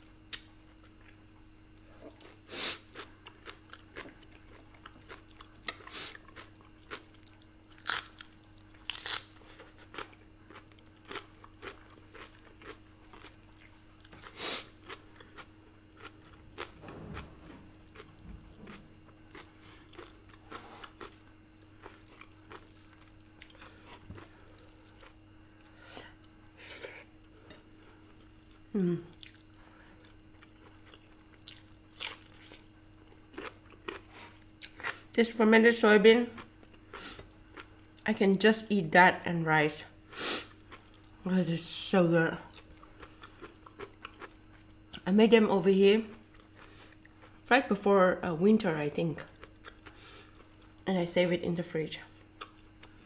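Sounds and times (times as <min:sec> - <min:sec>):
chewing and lip-smacking: 0:00.3 - 0:26.4, 0:28.1 - 0:35.2, 0:36.4 - 0:37.8, 0:42.5 - 0:45.0, 0:49.2 - 0:50.8, 0:52.1 - 0:53.0
small crunches: 0:02.0 - 0:26.3, 0:29.2 - 0:35.1.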